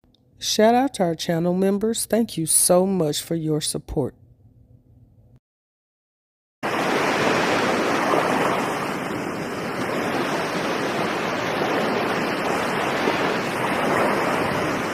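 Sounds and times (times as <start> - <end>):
sea waves rushing: 6.6 - 14.9
wind: 6.6 - 14.9.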